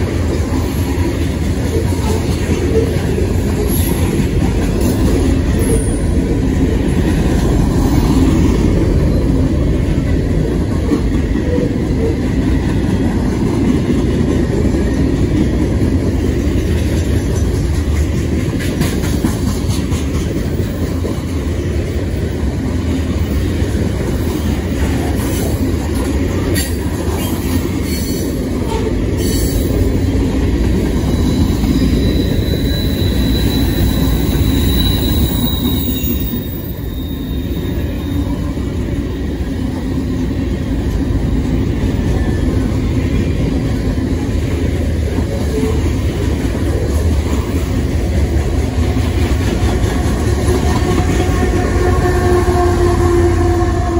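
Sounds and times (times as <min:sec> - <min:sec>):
freight train cars rolling past: 0:00.0 - 0:53.9
high wheel squeal: 0:31.0 - 0:38.4.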